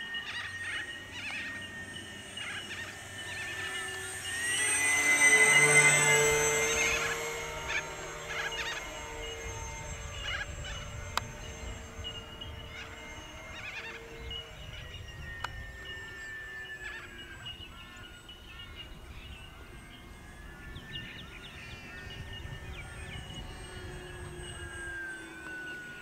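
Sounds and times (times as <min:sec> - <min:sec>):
birds chirping: 0:00.0 - 0:26.0
model plane motors whining: 0:00.0 - 0:26.0
wind rumble on microphone: 0:07.8 - 0:25.0.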